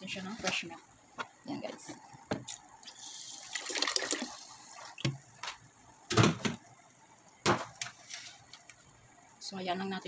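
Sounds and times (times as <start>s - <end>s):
milk pouring and splashing: 2.1s - 5.7s.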